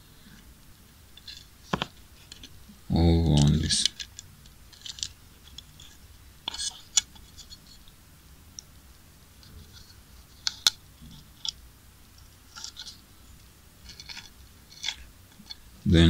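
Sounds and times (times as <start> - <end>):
light scratching of plastic: 3.4 - 8.0, 9.4 - 11.6, 12.2 - 13.0, 13.8 - 15.6.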